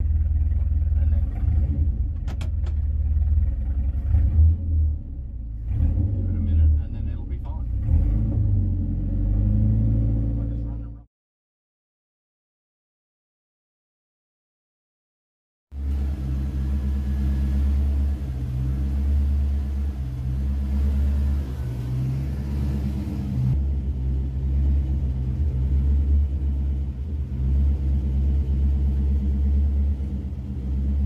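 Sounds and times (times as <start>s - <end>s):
car engine idling: 0.0s - 7.8s, 15.7s - 31.0s.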